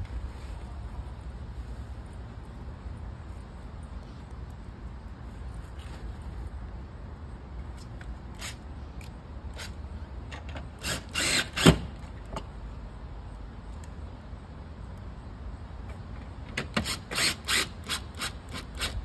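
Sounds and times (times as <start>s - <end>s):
cordless drill driving screws: 10.8s - 11.8s, 16.8s - 19.0s.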